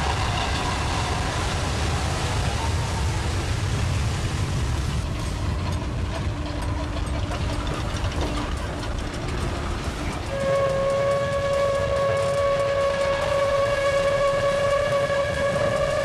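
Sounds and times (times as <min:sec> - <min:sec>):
train rumbling on rails: 0:00.0 - 0:16.0
train whistle: 0:10.2 - 0:16.0.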